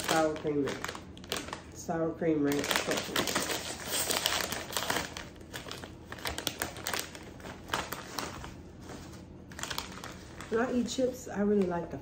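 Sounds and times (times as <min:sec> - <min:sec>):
plastic chip bag crinkling: 0:00.0 - 0:12.0.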